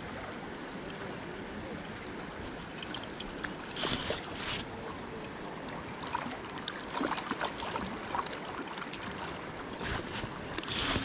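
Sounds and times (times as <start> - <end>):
river current lapping: 0.0 - 11.0
small water splashes: 2.6 - 11.0.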